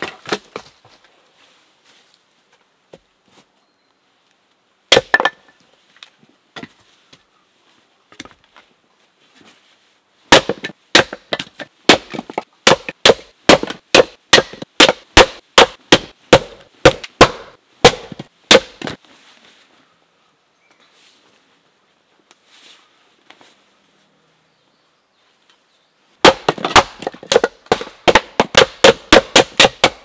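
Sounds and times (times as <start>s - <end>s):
axe splitting wood: 4.9s - 5.4s, 10.3s - 19.0s, 26.2s - 30.0s.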